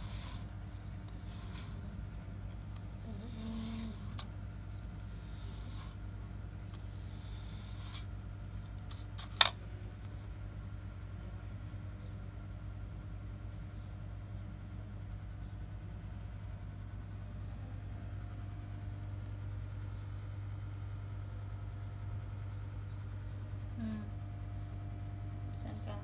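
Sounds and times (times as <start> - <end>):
brush through cat fur: 0.0 - 0.5
low mechanical hum: 0.0 - 26.0.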